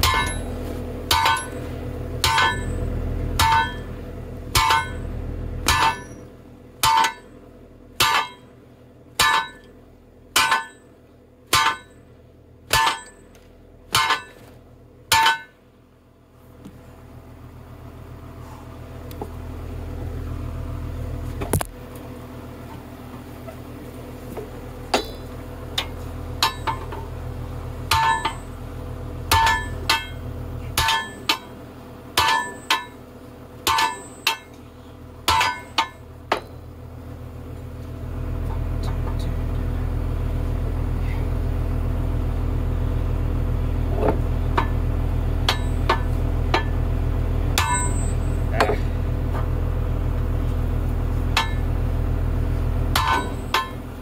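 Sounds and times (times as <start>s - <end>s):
sledgehammer ringing on steel: 0.0s - 7.4s, 8.0s - 8.5s, 9.2s - 12.1s, 12.7s - 14.5s, 15.1s - 15.6s, 25.8s - 27.0s, 27.9s - 28.6s, 29.3s - 31.5s, 32.2s - 33.0s, 33.6s - 34.6s, 35.3s - 36.6s, 45.4s - 46.8s, 47.6s - 49.0s, 51.3s - 51.7s, 52.9s - 54.0s
engine running: 0.0s - 54.0s.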